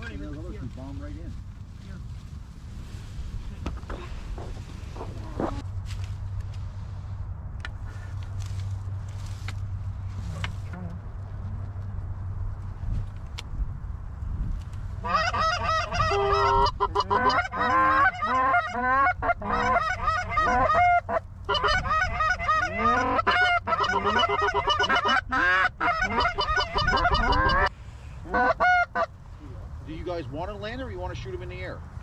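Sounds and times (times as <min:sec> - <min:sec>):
geese honking and clucking: 0:04.9 - 0:05.6, 0:15.0 - 0:29.2.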